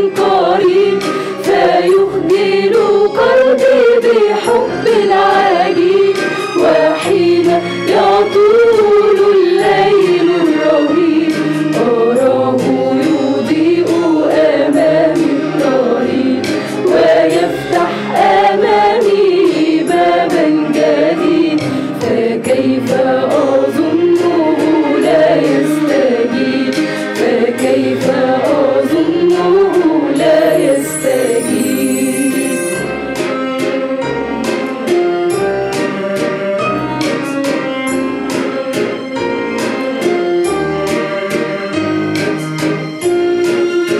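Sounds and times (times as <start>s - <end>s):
mixed choir singing a hymn: 0.0s - 34.2s.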